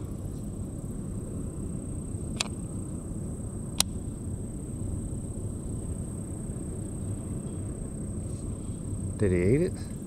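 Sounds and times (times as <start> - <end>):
insects droning: 0.0 - 10.0
low rumbling background: 0.0 - 10.0
sharp click: 2.4 - 2.6.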